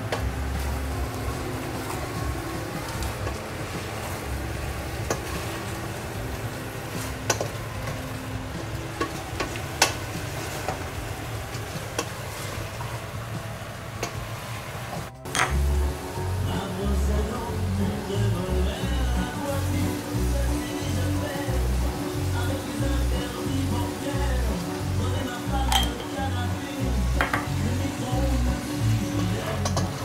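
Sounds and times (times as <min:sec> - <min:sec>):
food sizzling in a metal pot: 0:00.0 - 0:30.0
wooden spoon stirring: 0:00.0 - 0:30.0.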